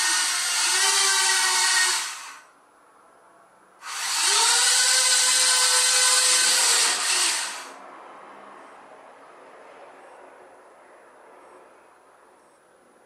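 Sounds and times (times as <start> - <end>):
small electric motors whining: 0.0 - 2.4, 3.8 - 7.8.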